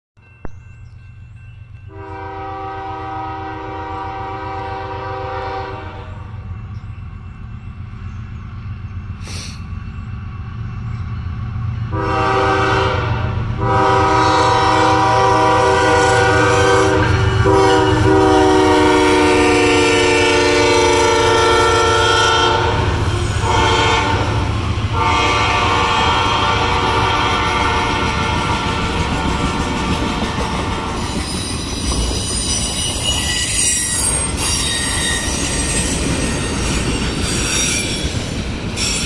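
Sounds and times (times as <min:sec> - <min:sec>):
locomotive air horn: 0:01.9 - 0:06.4, 0:11.9 - 0:30.0.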